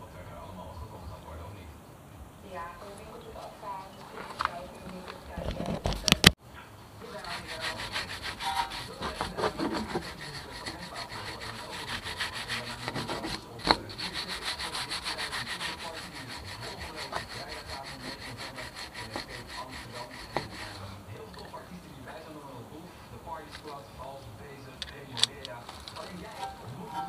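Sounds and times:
brush scrubbing metal: 7.0 - 21.5.

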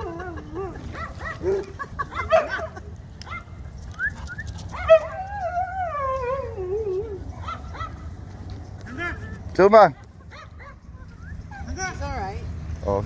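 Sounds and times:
dog whining: 0.0 - 2.6, 3.3 - 8.0
dog yelping: 0.0 - 8.1, 10.2 - 12.0.

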